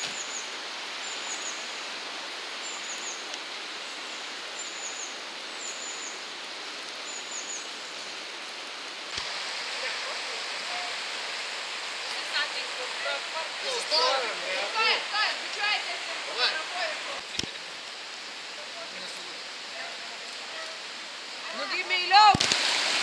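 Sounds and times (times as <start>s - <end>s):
river rushing over rocks: 9.2s - 23.0s.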